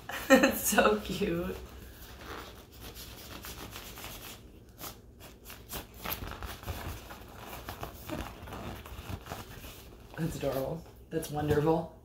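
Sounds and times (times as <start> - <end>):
plastic toy skin rubbing: 1.6 - 10.2.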